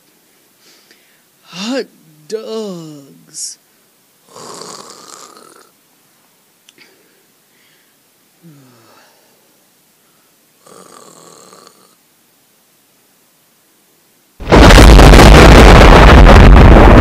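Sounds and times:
person imitating snoring: 4.2s - 5.7s, 8.4s - 9.2s, 10.6s - 12.0s.

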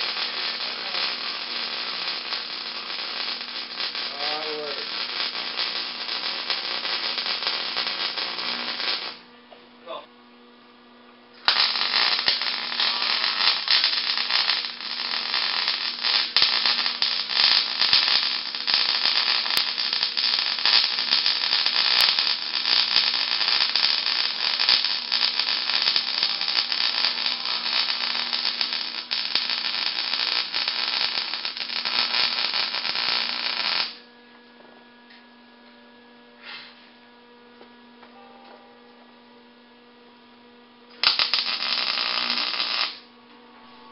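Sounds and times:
arc welder crackling: 0.0s - 9.3s, 11.3s - 34.1s, 40.9s - 43.1s
electrical hum: 0.0s - 43.9s.

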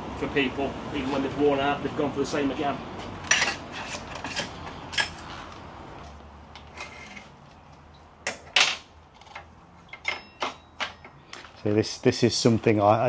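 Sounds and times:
metal tools clinking and clanking: 3.2s - 5.6s, 6.6s - 11.6s
metallic ring: 8.6s - 11.2s.

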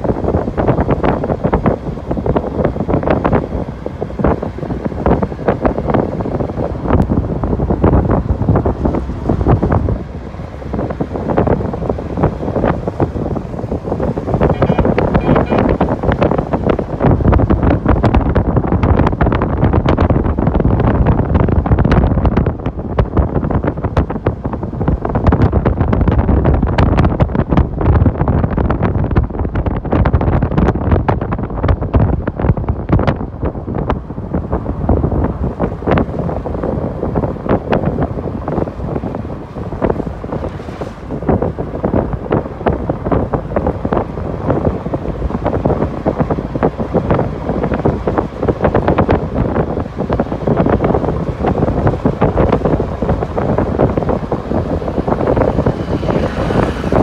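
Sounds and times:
vehicle road noise: 0.0s - 57.0s
wind buffeting microphone: 0.0s - 57.0s.

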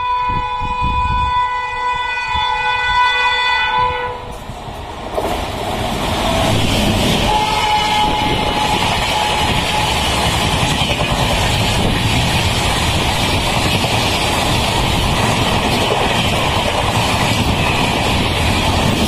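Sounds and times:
train horn: 0.0s - 4.5s, 7.2s - 10.3s
train rushing past: 0.0s - 19.0s.

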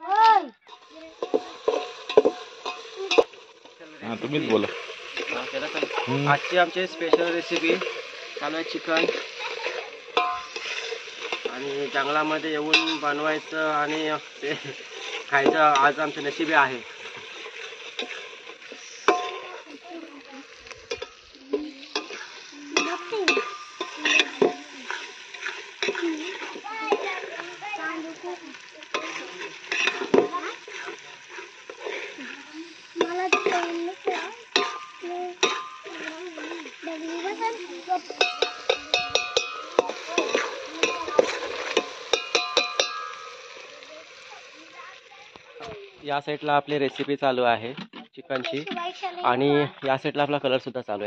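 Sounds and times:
food sizzling: 0.0s - 51.0s
metal spatula scraping a pot: 0.6s - 44.3s
clinks and knocks against pot: 0.7s - 3.8s, 10.1s - 13.1s, 19.0s - 19.5s, 20.8s - 27.1s, 34.5s - 36.0s, 38.1s - 43.5s.

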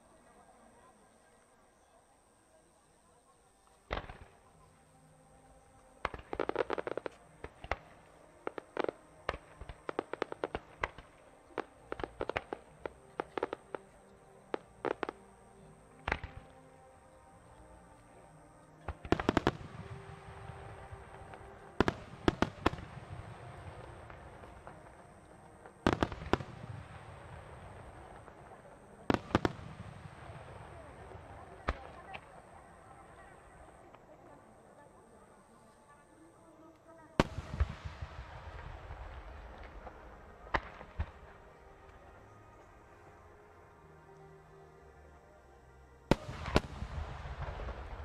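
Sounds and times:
firework pops and crackles: 3.9s - 4.4s, 6.0s - 13.8s, 14.5s - 15.2s, 16.0s - 16.6s, 18.9s - 19.8s, 21.8s - 30.5s, 37.2s - 41.3s, 46.1s - 48.0s.

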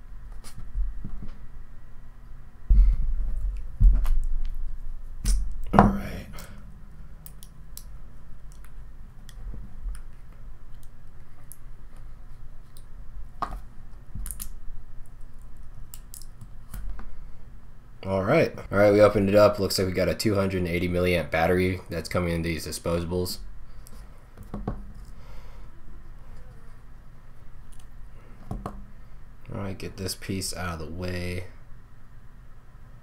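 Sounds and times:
low thumps: 5.6s - 6.9s.

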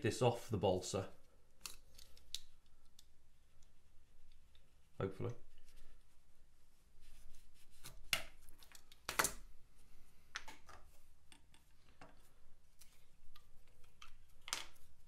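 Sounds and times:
pieces set down on tile: 14.5s - 14.8s.

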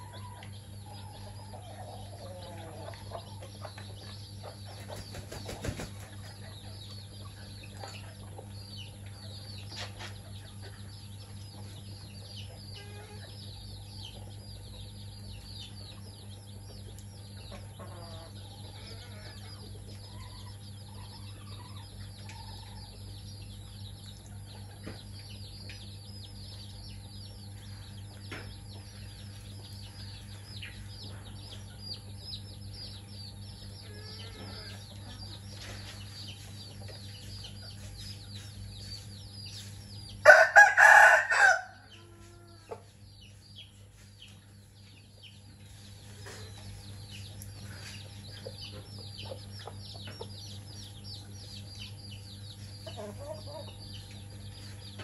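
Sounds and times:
hen clucking: 0.0s - 23.0s, 33.0s - 39.1s, 52.6s - 55.0s
chicks peeping: 0.0s - 55.0s
chicken wing flapping: 4.8s - 6.4s.

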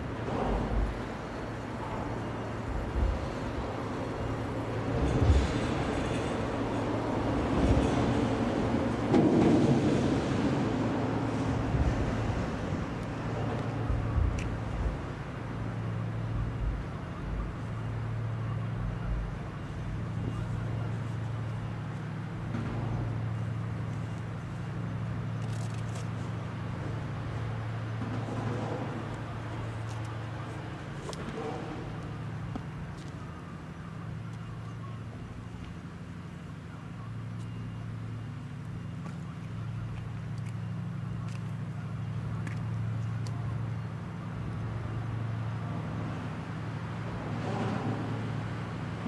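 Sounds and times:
broad rushing noise: 0.0s - 34.2s
ship engines droning: 0.0s - 49.0s.

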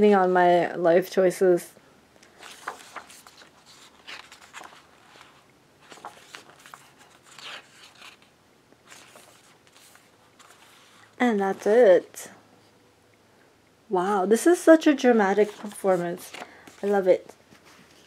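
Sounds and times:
page turning: 2.3s - 11.8s, 15.3s - 18.0s
paper pages rustling: 2.3s - 11.9s, 15.3s - 18.0s.

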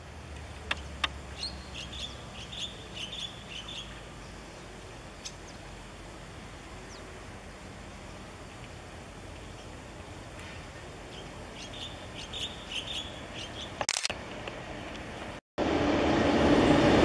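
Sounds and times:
small bird chirping: 0.5s - 5.7s, 11.1s - 13.8s
sharp click: 13.8s - 14.2s.

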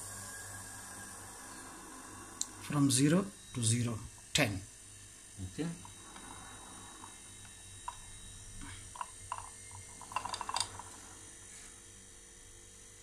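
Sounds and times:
refrigerator compressor humming: 0.0s - 13.0s
metal gauges clattering: 8.9s - 11.0s.

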